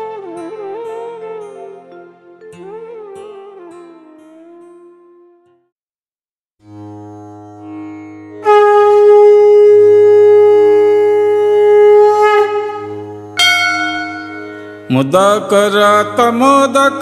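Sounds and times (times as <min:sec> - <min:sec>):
conch shell blowing: 0:08.4 - 0:14.9.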